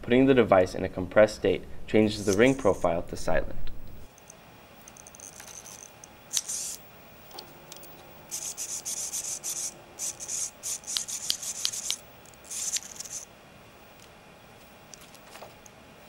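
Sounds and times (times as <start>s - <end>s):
small motor whirring: 4.9s - 6.8s, 8.3s - 13.3s.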